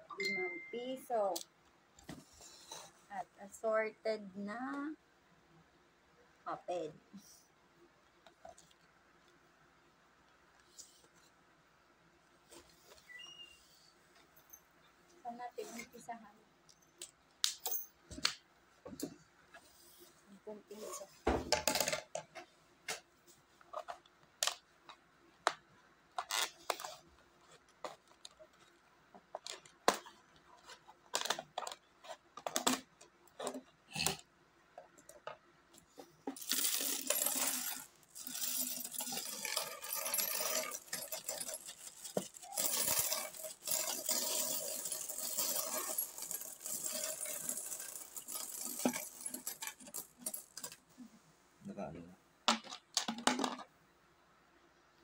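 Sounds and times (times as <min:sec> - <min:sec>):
coins clinking into plastic bottle: 0:36.3 - 0:50.8
coins jingling on a table: 0:36.4 - 0:50.8.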